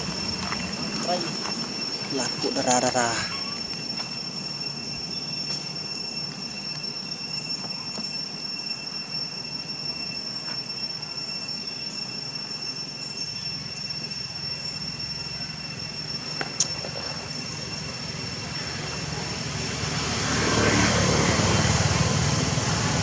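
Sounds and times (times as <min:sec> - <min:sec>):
low engine drone: 0:00.0 - 0:05.9, 0:13.6 - 0:23.0
high thin whine: 0:00.0 - 0:23.0.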